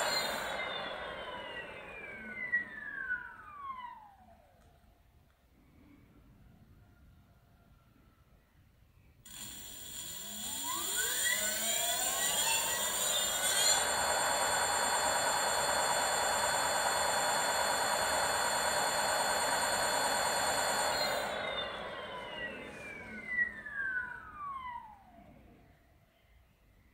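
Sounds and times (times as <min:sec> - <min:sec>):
electric motor whine: 0:00.0 - 0:04.2, 0:09.3 - 0:25.6.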